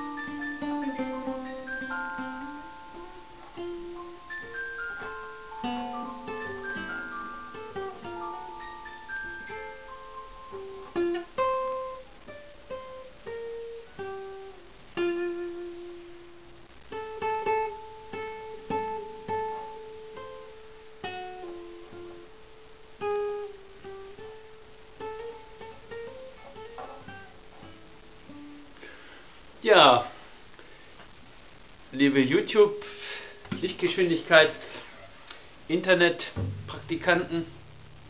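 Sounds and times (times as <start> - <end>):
classical guitar fingerstyle: 0.0 - 28.7.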